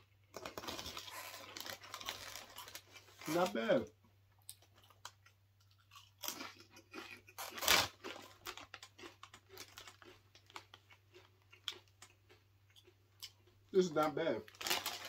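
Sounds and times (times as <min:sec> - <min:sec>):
person crunching tortilla chips: 0:00.3 - 0:03.6, 0:04.5 - 0:13.6, 0:14.5 - 0:15.0
plastic chip bag crinkling: 0:00.3 - 0:03.6, 0:06.2 - 0:11.8, 0:14.4 - 0:15.0.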